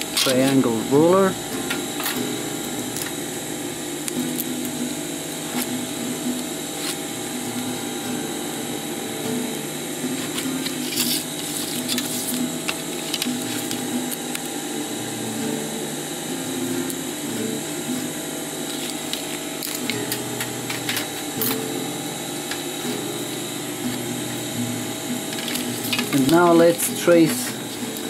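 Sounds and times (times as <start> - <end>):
steady whirring drone: 0.0 - 28.0.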